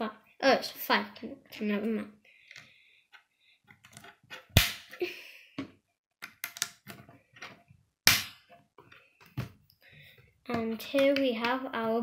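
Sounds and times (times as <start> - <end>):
loud plastic snap: 4.5 - 5.0, 8.1 - 8.4
plastic pieces clicking together: 6.2 - 7.0.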